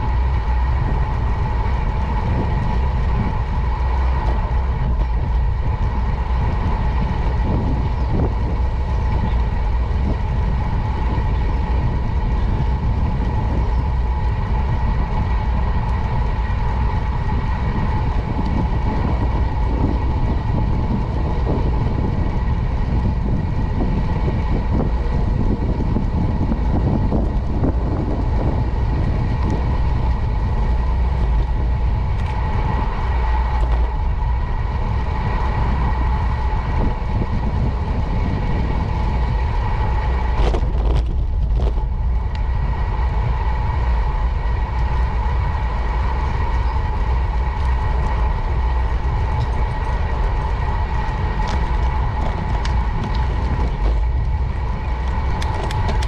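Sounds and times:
bicycle tyres rumbling on asphalt: 0.0s - 56.0s
thin whine: 0.0s - 56.0s
wind on microphone: 0.0s - 56.0s.

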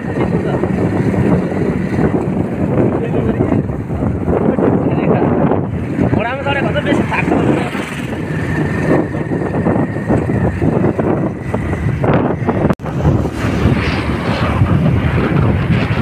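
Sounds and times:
motorcycle engine: 0.0s - 16.0s
road noise: 0.0s - 16.0s
wind rushing over microphone: 0.0s - 16.0s.

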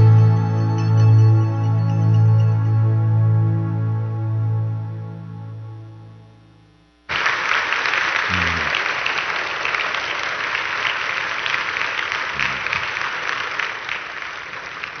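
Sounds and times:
audience applauding: 7.1s - 15.0s
person calling out in crowd: 8.3s - 8.7s.

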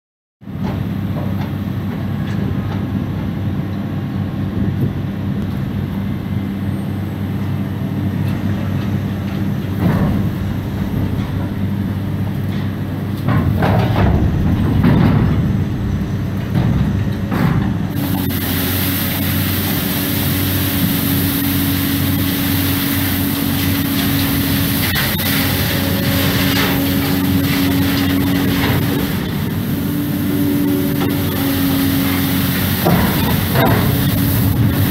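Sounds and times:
steady machine hum: 0.8s - 34.9s
higher steady hum: 2.6s - 34.9s
scattered knocks: 12.6s - 18.2s
bright hiss: 18.0s - 34.9s.

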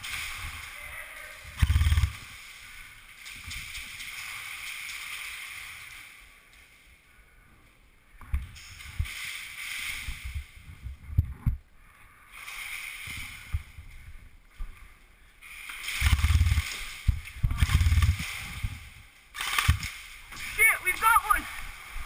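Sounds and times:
gear rustling against camera: 12.3s - 20.6s.

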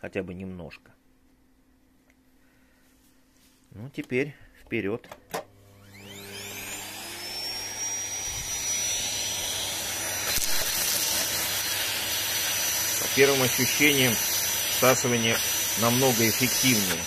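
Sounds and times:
vacuum cleaner motor whine: 5.4s - 17.0s.

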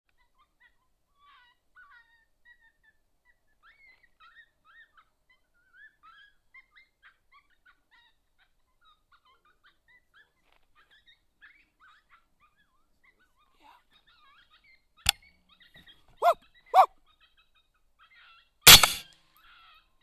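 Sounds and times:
coyotes yipping and howling: 16.2s - 16.9s.

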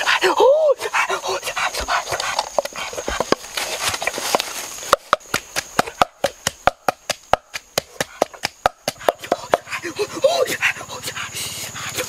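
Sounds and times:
rustling hiss: 0.0s - 12.0s
sharp knocks of a tool on food: 5.0s - 9.6s.

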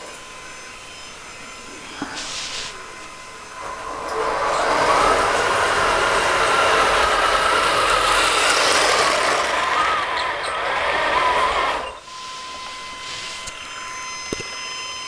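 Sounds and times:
toy vehicle motors whirring: 0.0s - 14.8s
plastic tracks rattling: 3.7s - 12.0s.

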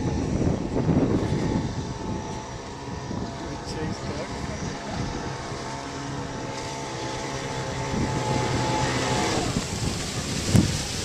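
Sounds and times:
small water craft engine: 0.0s - 11.0s.

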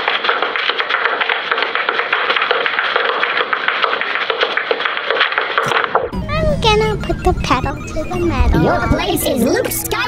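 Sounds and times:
tap shoes tapping on hard floor: 0.0s - 6.1s.

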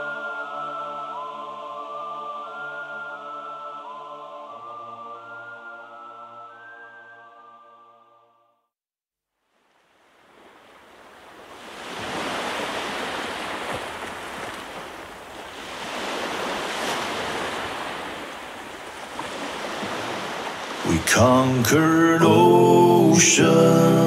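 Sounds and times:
ocean waves surging: 10.0s - 24.0s.

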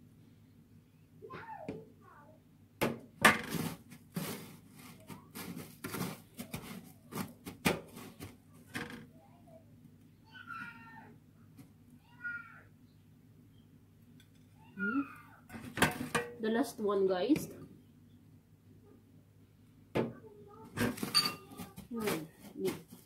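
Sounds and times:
breadcrumbs crunching on metal tray: 3.4s - 8.4s.

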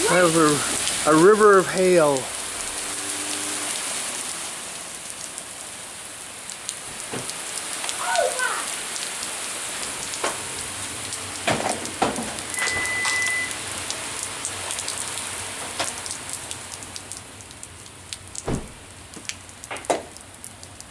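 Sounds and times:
hail pelting a paved street: 0.0s - 20.9s
hailstones ticking: 9.8s - 20.9s.

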